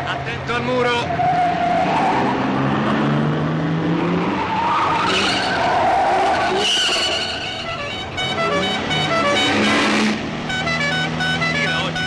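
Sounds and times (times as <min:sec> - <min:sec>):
car engine revving: 0:00.0 - 0:12.0
tyres squealing: 0:04.4 - 0:10.0.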